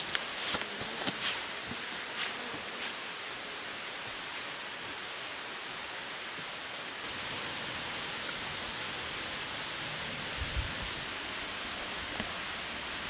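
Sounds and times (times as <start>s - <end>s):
footsteps on stone steps: 0.0s - 6.6s
waterfall rushing: 7.0s - 13.0s.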